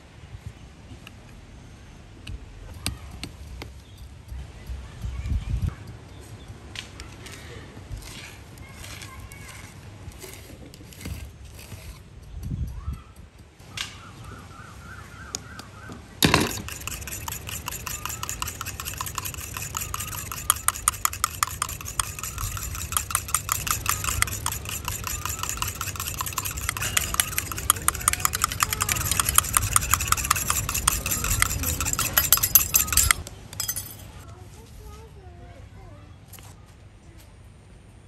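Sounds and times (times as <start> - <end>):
metal utensil scraping pot: 16.2 - 34.1.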